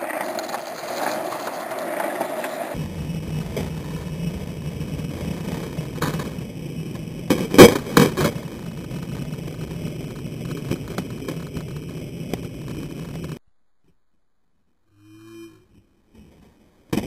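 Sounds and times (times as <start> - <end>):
skateboard clacking on pavement: 0.0 - 2.8, 5.2 - 6.4
skateboard wheels rolling on asphalt: 0.0 - 13.4.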